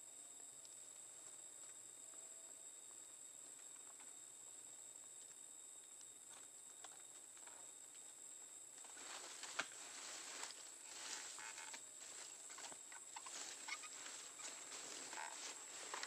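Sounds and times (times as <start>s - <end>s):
crickets chirping: 0.0s - 16.0s
dry leaves rustling and snapping: 8.9s - 9.8s.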